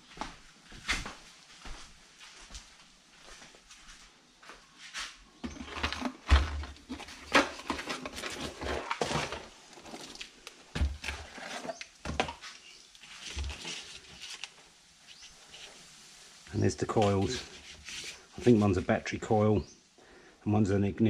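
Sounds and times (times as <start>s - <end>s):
cardboard box rustling and scraping: 5.4s - 10.2s, 10.8s - 11.8s, 13.0s - 14.5s, 17.3s - 18.6s.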